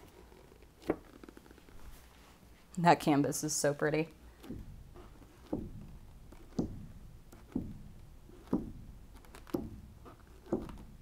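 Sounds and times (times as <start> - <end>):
balloon dabbing on canvas: 0.0 - 2.5, 4.1 - 11.0.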